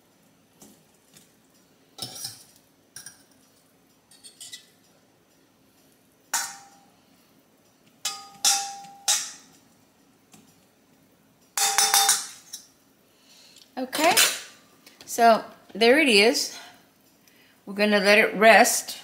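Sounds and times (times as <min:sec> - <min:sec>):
metal fork clinking on steel pot: 0:08.0 - 0:09.5, 0:11.6 - 0:12.7.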